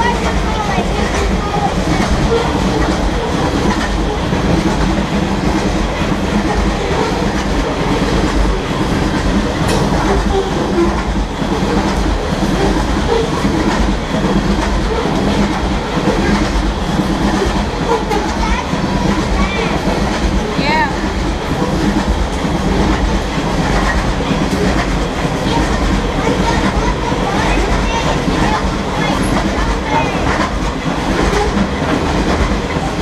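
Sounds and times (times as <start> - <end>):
freight train rolling past: 0.0 - 33.0.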